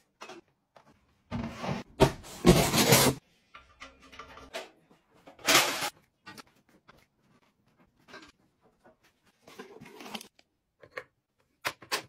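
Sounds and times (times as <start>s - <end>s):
cardboard box scraping on tile: 1.4s - 3.2s.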